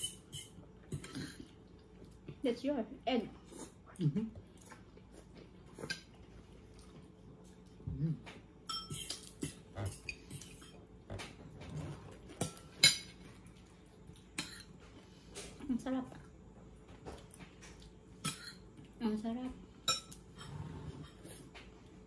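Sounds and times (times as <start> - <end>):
cutlery clinking against plates: 8.6 - 10.9, 12.4 - 13.2, 19.8 - 21.2.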